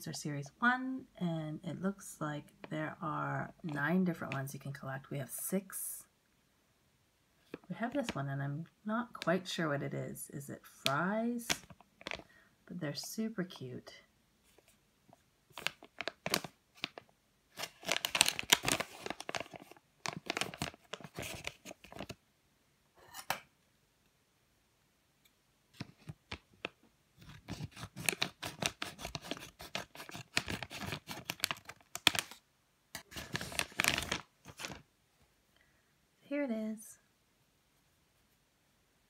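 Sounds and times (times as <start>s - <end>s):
plastic packaging crinkling and tearing: 15.5s - 22.2s, 25.8s - 32.4s, 33.0s - 34.8s.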